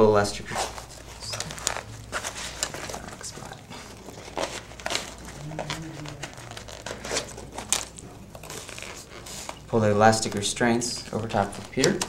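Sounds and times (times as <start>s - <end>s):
nylon fabric and straps rustling: 0.5s - 9.8s.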